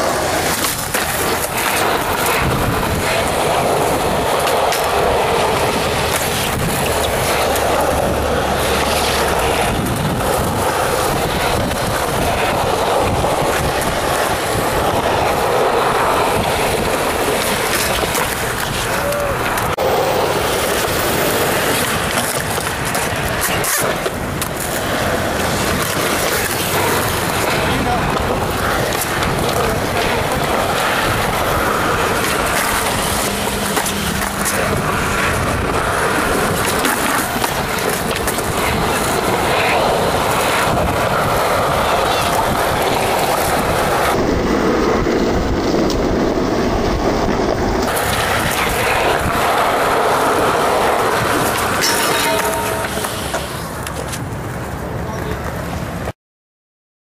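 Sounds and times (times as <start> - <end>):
wind buffeting microphone: 0.0 - 55.2
skateboard wheels rolling on concrete: 0.0 - 56.2.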